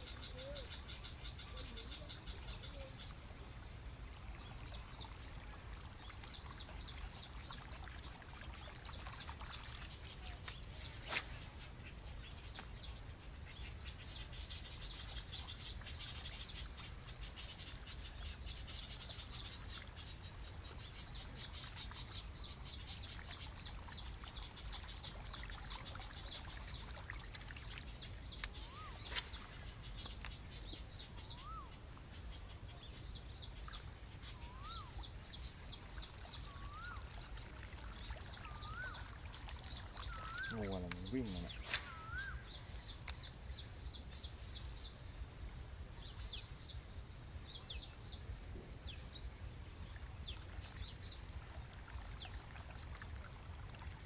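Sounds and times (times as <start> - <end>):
birds chirping: 0.0 - 3.4, 27.6 - 45.2.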